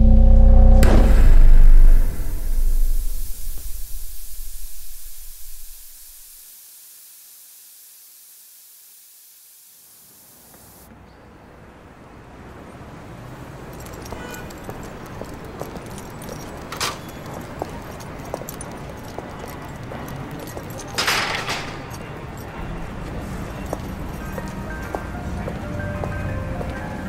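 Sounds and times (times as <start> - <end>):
street ambience: 0.0 - 6.4, 10.4 - 27.0
footsteps on pavement: 13.5 - 27.0.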